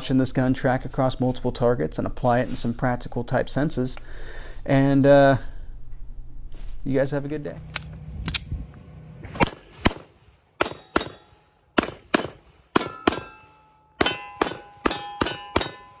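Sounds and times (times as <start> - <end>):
pistol shots: 9.4 - 16.0
steel targets clanging: 10.6 - 16.0.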